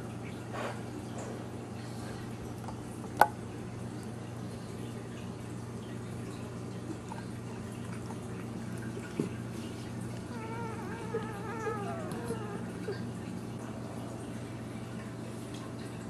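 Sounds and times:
puppy squealing: 10.3s - 13.0s.

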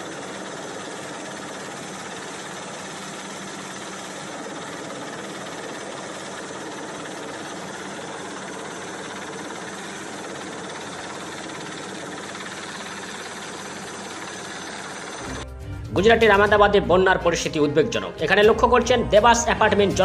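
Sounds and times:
helicopter hovering: 0.0s - 15.5s.

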